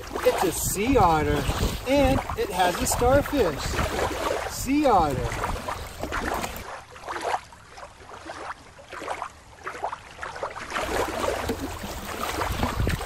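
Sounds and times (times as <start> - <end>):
water lapping on rocky shore: 0.0 - 13.0.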